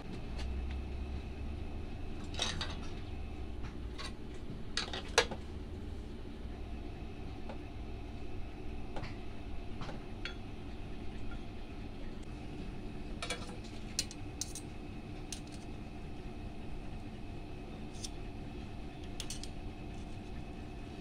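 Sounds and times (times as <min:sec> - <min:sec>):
steady low hum: 0:00.0 - 0:21.0
metal tools clicking and clinking: 0:14.0 - 0:14.7, 0:15.3 - 0:15.7, 0:19.1 - 0:19.6.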